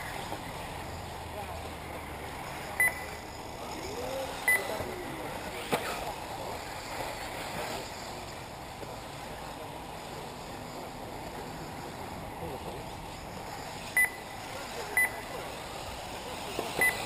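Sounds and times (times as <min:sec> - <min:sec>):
outdoor background noise: 0:00.0 - 0:17.0
short high electronic beeps: 0:02.8 - 0:03.2, 0:04.4 - 0:04.7, 0:13.9 - 0:14.3, 0:16.8 - 0:17.0.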